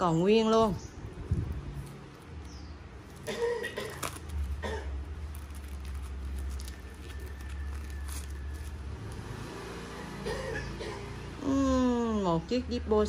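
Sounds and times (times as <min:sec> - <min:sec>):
paper box clicks and rustles: 0:03.9 - 0:08.8.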